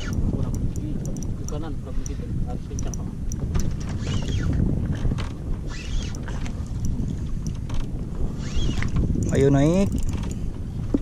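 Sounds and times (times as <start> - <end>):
light clicks: 0.0 - 3.8
small boat noise at sea: 0.0 - 11.0
wind on microphone: 0.0 - 11.0.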